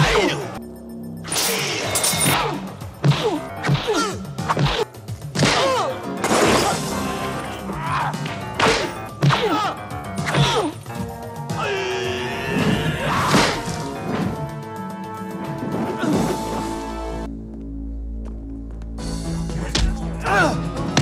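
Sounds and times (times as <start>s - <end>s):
background music: 0.0s - 21.0s
shouted yells and grunts: 6.7s - 8.2s, 11.5s - 13.6s, 20.1s - 20.8s.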